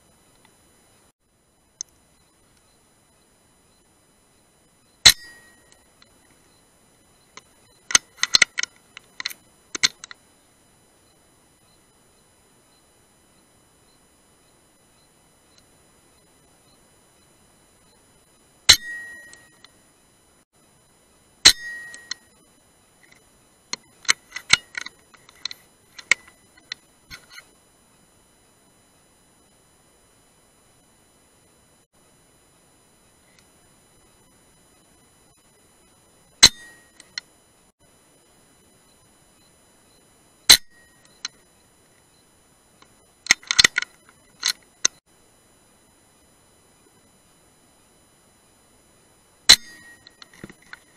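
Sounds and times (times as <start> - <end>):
sharp clicks and knocks: 7.3 - 10.2, 23.0 - 27.5, 42.8 - 45.0, 49.5 - 50.9.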